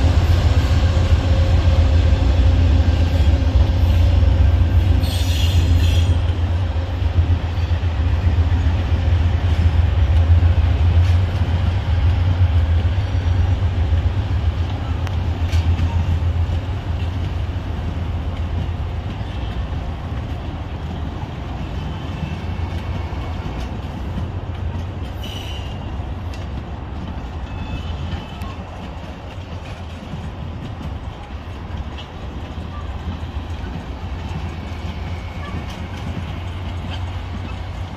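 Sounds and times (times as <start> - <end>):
train wheels rumbling on rail: 0.0 - 37.9
high wheel squeal: 5.0 - 6.3.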